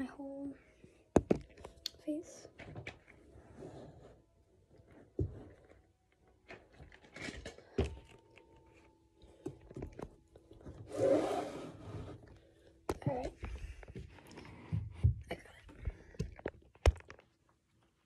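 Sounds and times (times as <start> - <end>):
rustling scrape: 3.2 - 4.3, 10.8 - 12.3.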